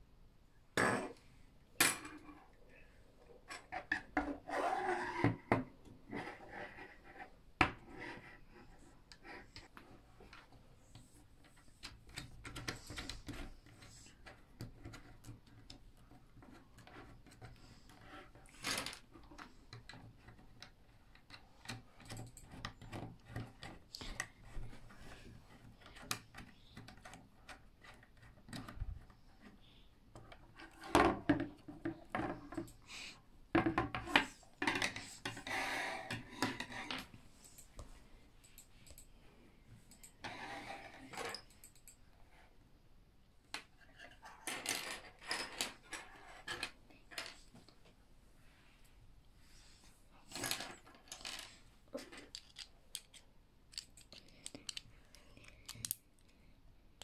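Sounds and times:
plastic parts clattering and scraping: 50.2 - 56.0
plastic parts clicking and knocking: 50.3 - 56.3.

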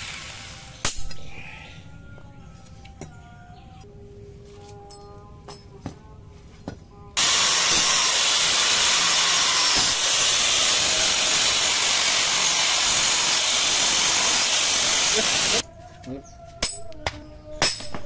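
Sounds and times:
angle grinder grinding metal: 7.2 - 15.6.

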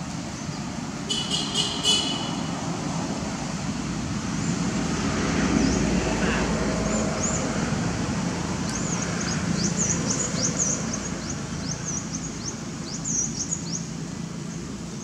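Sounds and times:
birds chirping: 5.5 - 7.6, 8.5 - 15.0.

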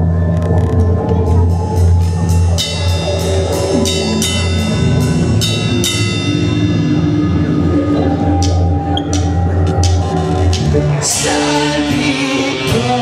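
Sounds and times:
sustained low drone: 0.0 - 12.6
ringing bell-like struck notes: 2.0 - 10.8.

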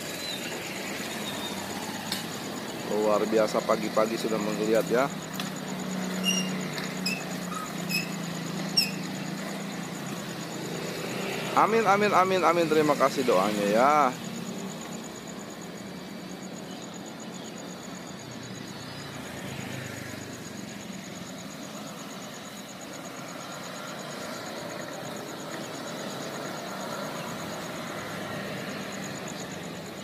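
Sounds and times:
motorcycle engines passing: 0.0 - 30.0.

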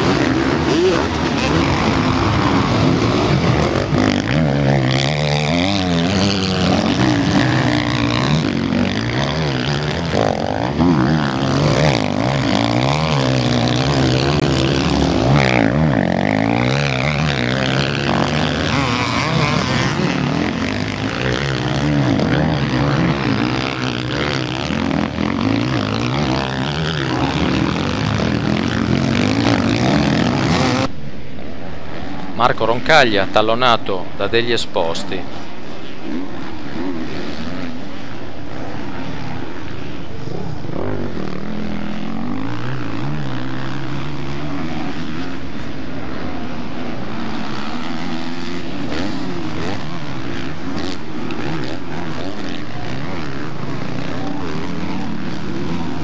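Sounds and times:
motocross bikes racing past: 0.0 - 56.0.

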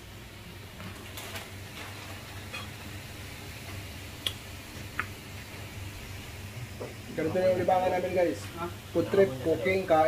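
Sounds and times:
low steady hum: 0.0 - 10.0
kitchenware clinking: 2.4 - 2.8.

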